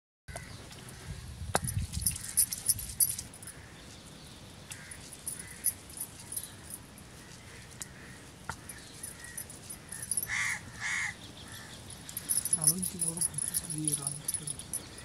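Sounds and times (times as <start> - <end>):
glass bangles clinking: 1.6 - 3.6, 4.8 - 7.1, 8.6 - 10.6, 11.6 - 15.0.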